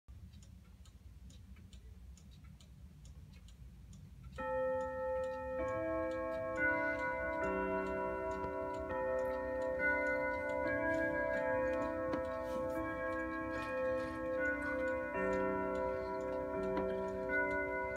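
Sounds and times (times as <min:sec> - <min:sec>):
clock ticking: 0:00.1 - 0:17.9
clock chime melody: 0:04.4 - 0:17.9.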